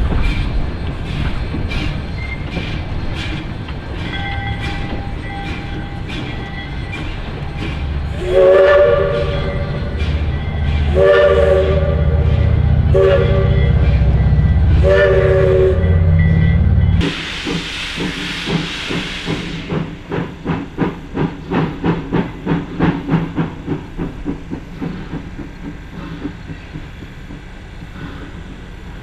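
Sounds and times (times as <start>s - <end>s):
low rumble of a train: 0.0s - 29.0s
steam locomotive exhaust chuffs: 0.0s - 29.0s
train whistle short blasts: 8.2s - 9.9s, 10.8s - 13.9s, 14.7s - 16.1s
loud hiss of steam: 16.9s - 26.5s.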